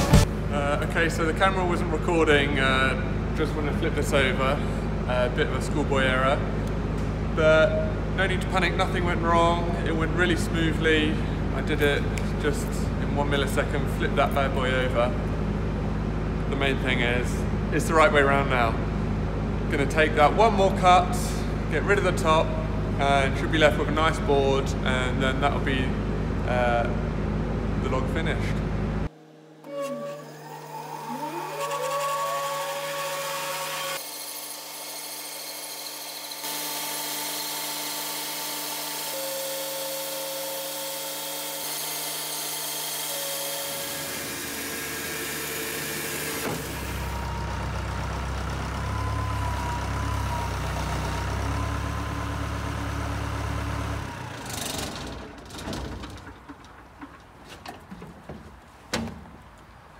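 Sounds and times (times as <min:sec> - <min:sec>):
band sawmill cutting log: 0:29.6 - 0:55.4
knocks and clatters: 0:54.8 - 0:59.6.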